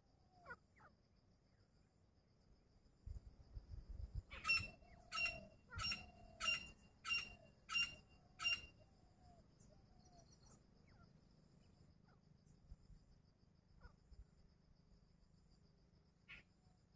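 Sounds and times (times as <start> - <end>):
bird ringing call: 4.3 - 8.8.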